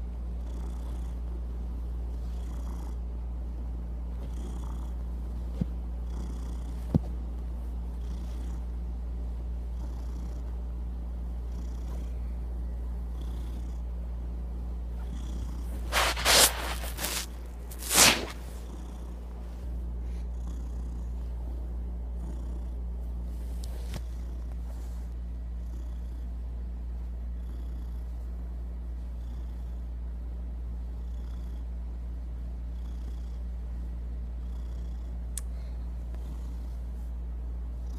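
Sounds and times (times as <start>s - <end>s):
cat purring: 0.0s - 35.3s
rustling scrapes against microphone: 15.7s - 18.6s.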